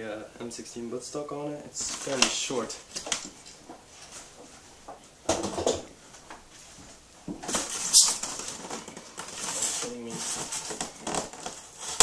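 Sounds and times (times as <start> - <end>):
rustling and scuffing of handling: 1.8 - 5.2, 6.0 - 12.0.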